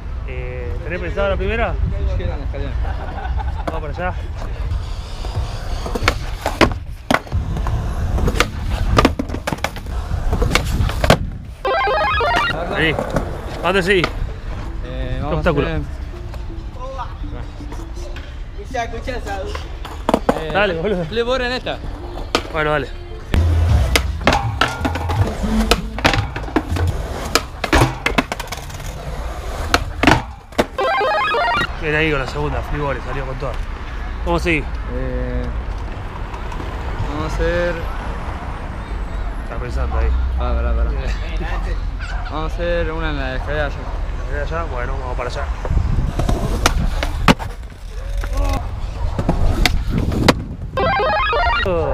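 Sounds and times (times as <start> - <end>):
skateboard wheels rolling on concrete: 1.7 - 16.8, 17.6 - 38.7, 42.7 - 50.8
skateboard clacking on ground: 5.2 - 11.4, 19.3 - 20.7, 23.4 - 30.8, 46.1 - 50.5.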